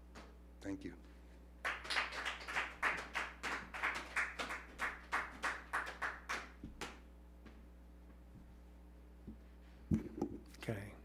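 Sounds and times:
small audience clapping: 1.6 - 7.1
low steady hum: 3.0 - 11.0.

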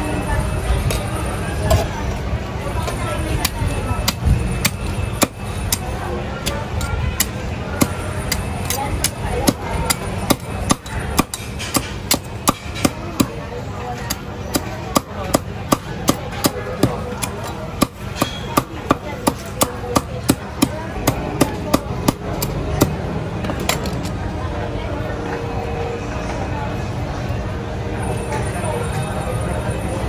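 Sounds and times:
steady background noise: 0.0 - 30.0
cleaver chopping on wooden block: 10.3 - 13.4.

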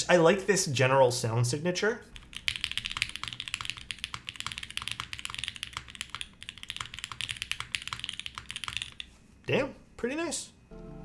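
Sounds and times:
fast mechanical keyboard typing: 2.2 - 9.1.

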